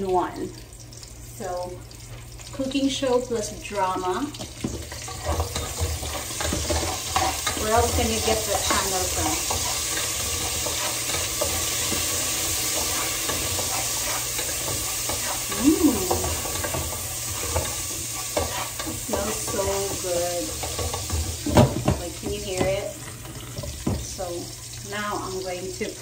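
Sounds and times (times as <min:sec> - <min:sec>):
garlic and onions sizzling: 0:00.0 - 0:26.0
spoon stirring in pot: 0:04.4 - 0:24.0.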